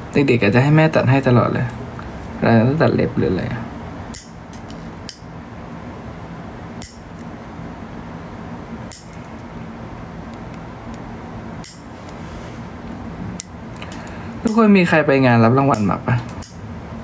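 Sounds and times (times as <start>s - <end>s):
faint steady hum: 0.0s - 17.0s
nail clipper clicks: 6.8s - 7.0s, 8.9s - 9.2s.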